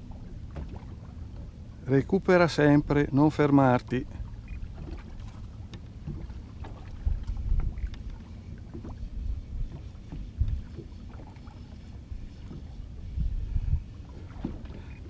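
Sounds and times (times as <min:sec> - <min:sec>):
wind rumbling on microphone: 0:04.0 - 0:15.0.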